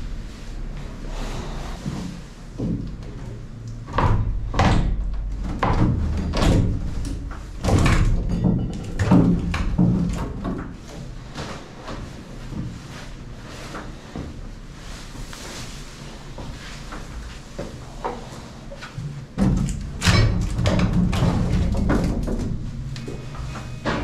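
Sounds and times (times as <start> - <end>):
wood knocks and thumps: 3.9 - 10.8, 19.0 - 22.8.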